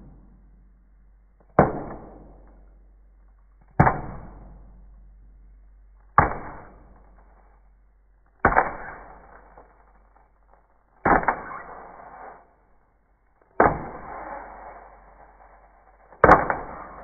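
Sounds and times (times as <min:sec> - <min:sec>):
wooden spoon striking ice: 0:13.6 - 0:17.0.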